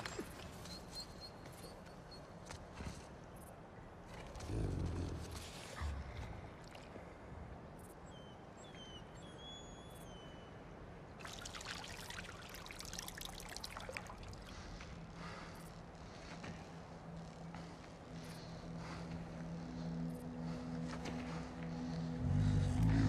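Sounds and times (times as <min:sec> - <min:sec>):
water trickling into a stone bowl: 0:11.2 - 0:14.5.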